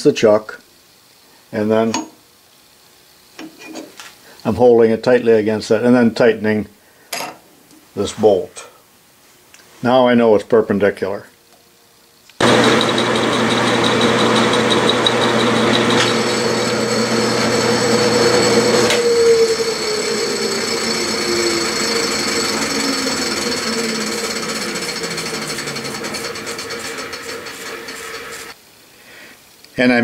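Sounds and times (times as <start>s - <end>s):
metal lathe whine: 12.4s - 28.6s
motor hum: 12.4s - 28.6s
tool cutting metal: 12.4s - 28.6s.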